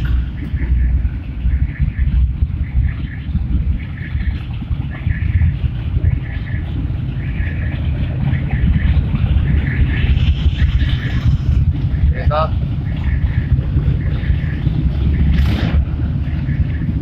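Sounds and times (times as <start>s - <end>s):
motorcycle engines rumbling: 0.0s - 17.0s.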